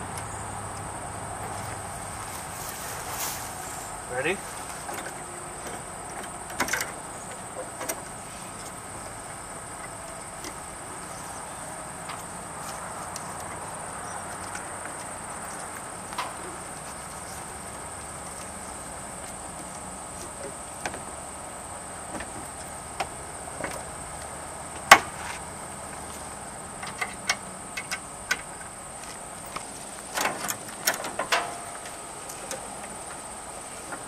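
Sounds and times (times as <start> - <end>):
strap hardware clicking and knocking: 4.9 - 11.1, 29.5 - 33.0.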